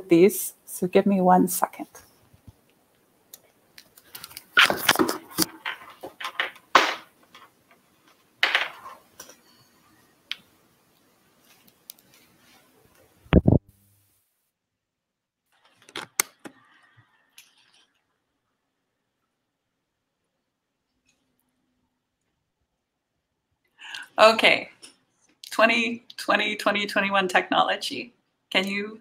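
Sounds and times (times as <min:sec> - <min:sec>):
headset rustling and scraping: 0:03.8 - 0:10.0.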